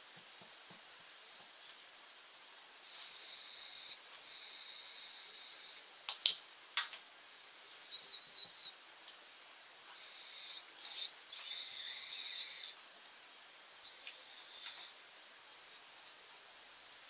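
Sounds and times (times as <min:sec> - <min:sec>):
puppy whining: 0:07.5 - 0:08.8, 0:10.0 - 0:12.8, 0:13.8 - 0:15.0.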